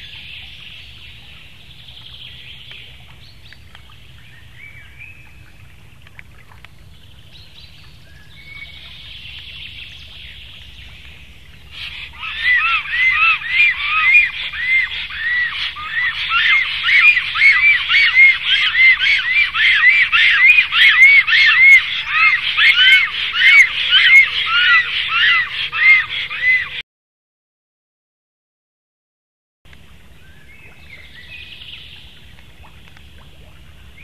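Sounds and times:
storks whistling calls: 11.8 - 26.8.

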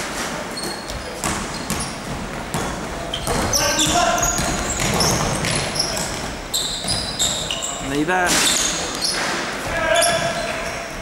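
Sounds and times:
basketball bouncing on court: 0.6 - 11.0
players calling out: 3.1 - 11.0.

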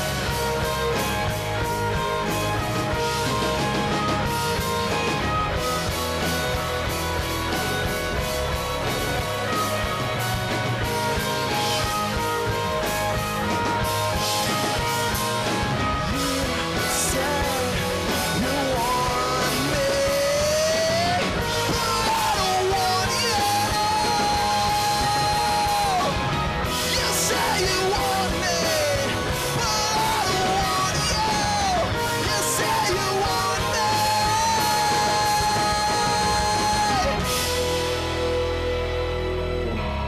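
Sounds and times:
live rock band playing: 0.0 - 40.0
person singing: 14.7 - 37.6.

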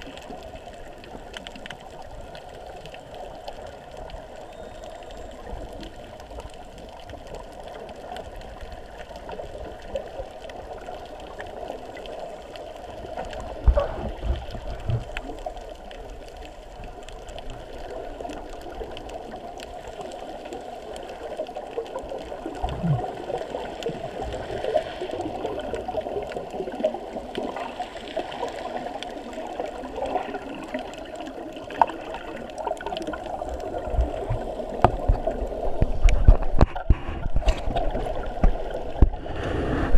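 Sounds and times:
muffled underwater crackling hiss: 0.0 - 39.9.

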